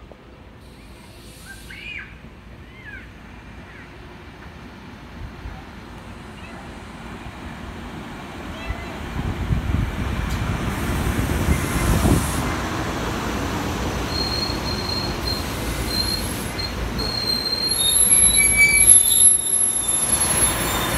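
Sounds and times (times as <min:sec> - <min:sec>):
train rumbling: 0:00.0 - 0:20.9
wheel and brake squeal: 0:14.1 - 0:20.9.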